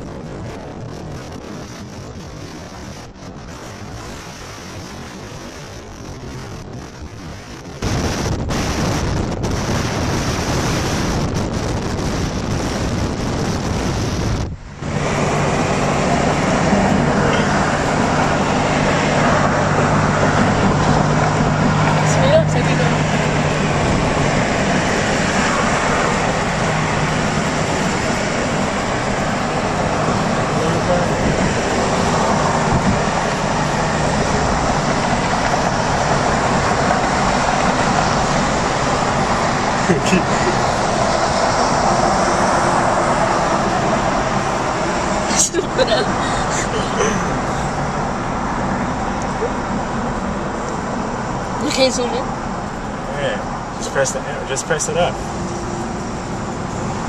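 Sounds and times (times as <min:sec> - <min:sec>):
car road noise: 0:00.0 - 0:57.0
low engine hum: 0:00.0 - 0:57.0
wind rushing over microphone: 0:00.0 - 0:57.0.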